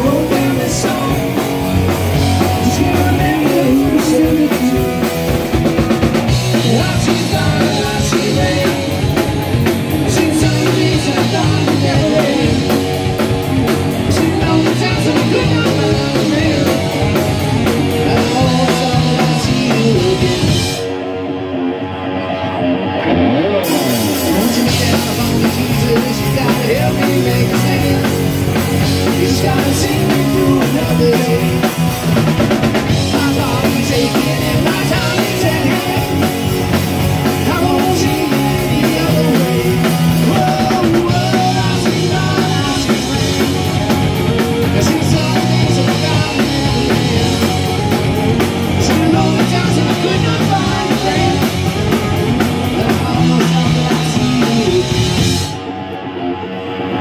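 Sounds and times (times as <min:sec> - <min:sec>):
lead vocal singing: 0:00.0 - 0:20.9, 0:23.8 - 0:47.9, 0:48.5 - 0:55.7
live rock band playing: 0:00.0 - 0:57.0.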